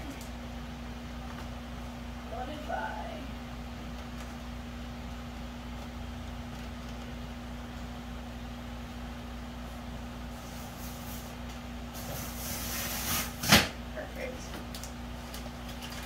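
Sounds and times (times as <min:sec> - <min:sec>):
equipment humming: 0:00.0 - 0:16.0.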